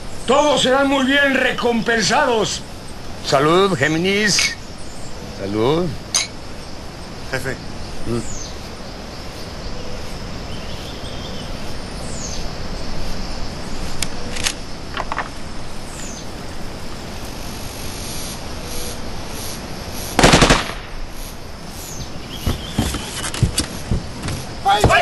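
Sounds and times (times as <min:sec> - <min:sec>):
outdoor background noise: 0:00.0 - 0:25.0
bird chirps: 0:03.8 - 0:14.4, 0:20.9 - 0:25.0
loud sharp crack: 0:20.2 - 0:21.4
coffins thudding on ground: 0:22.4 - 0:25.0.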